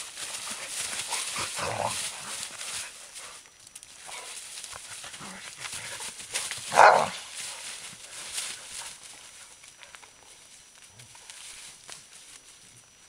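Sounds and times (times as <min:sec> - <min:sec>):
leaves rustling and crunching: 0:00.0 - 0:13.0
dog noises: 0:04.0 - 0:07.3
dog barking: 0:06.7 - 0:07.2.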